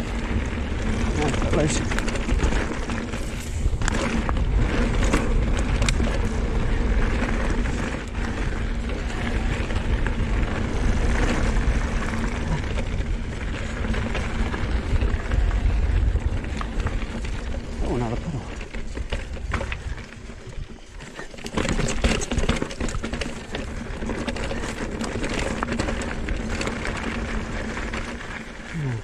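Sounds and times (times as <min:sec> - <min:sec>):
wind buffeting microphone: 0:00.0 - 0:21.0
bike knocks and rattles: 0:00.0 - 0:28.5
tyres rolling over dirt: 0:00.0 - 0:29.0.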